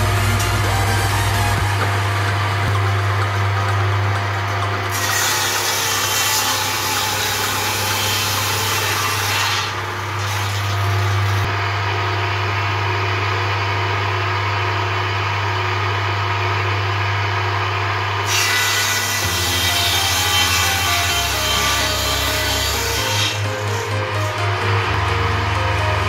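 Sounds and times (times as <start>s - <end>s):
saw blade cutting wood: 0.0s - 11.5s, 18.2s - 26.0s
table saw motor hum: 0.0s - 26.0s.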